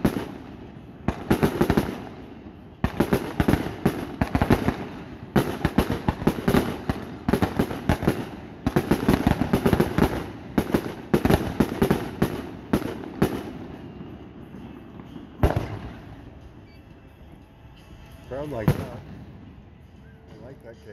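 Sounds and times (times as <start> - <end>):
firework bursts: 0.0 - 16.6.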